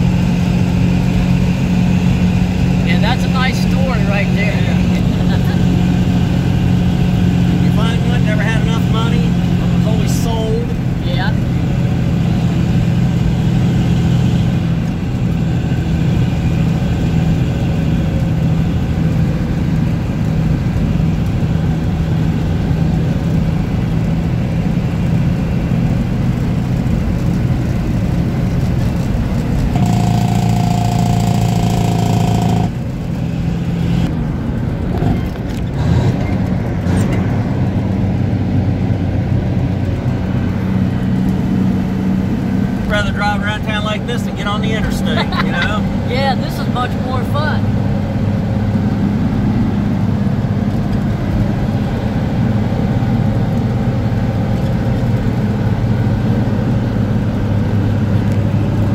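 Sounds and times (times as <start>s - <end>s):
diesel truck engine running: 0.0s - 58.9s
loud high-pitched sound: 29.8s - 32.8s.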